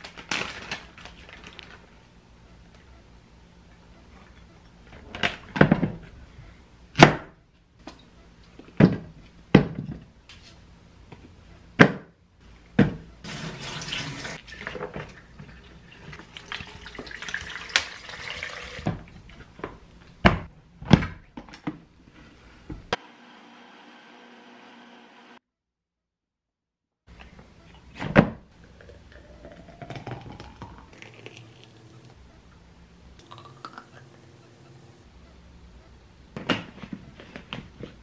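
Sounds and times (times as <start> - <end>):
running water or pouring: 13.3 - 18.9, 29.1 - 32.1
faint steady hum: 27.1 - 37.6.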